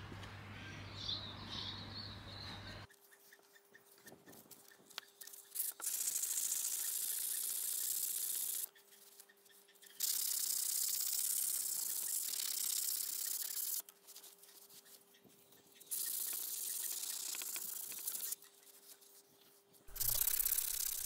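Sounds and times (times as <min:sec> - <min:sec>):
sandpaper scraping steel: 0:19.8 - 0:21.0.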